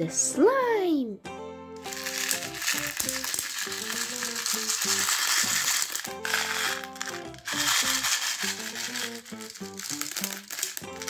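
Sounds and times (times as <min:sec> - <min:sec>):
background music melody: 0:00.0 - 0:11.0
plastic beads rattling in tub: 0:01.8 - 0:11.0.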